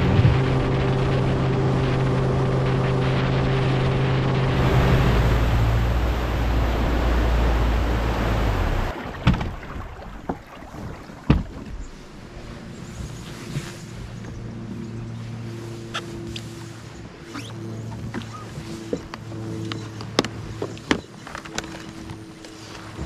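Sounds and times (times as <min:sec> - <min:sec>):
outboard motor running: 0:00.0 - 0:23.0
wind and water rushing: 0:00.0 - 0:23.0
knocks on boat: 0:08.8 - 0:11.9.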